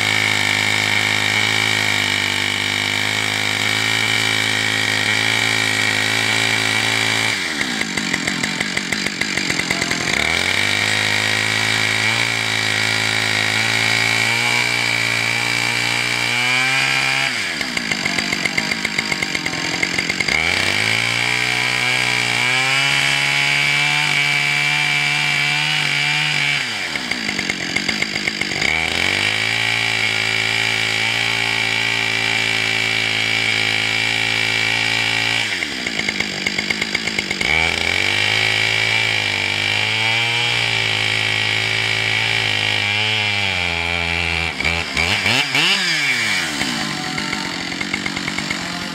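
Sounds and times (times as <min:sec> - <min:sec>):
chainsaw cutting log: 0:00.0 - 0:48.9.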